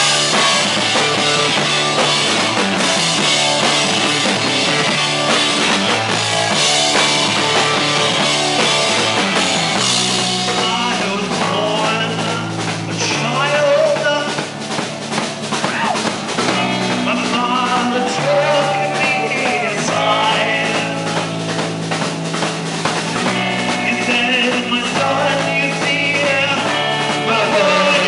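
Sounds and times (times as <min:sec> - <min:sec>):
bass line: 0:00.0 - 0:28.0
drums: 0:00.0 - 0:28.0
guitar: 0:00.0 - 0:28.0
person singing: 0:10.5 - 0:14.5, 0:15.6 - 0:21.4, 0:23.5 - 0:28.0.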